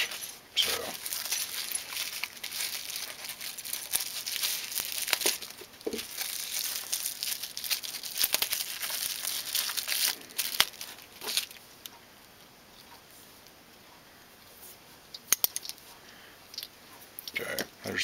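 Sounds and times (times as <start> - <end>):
bubble wrap crinkling and tearing: 0.0 - 11.6.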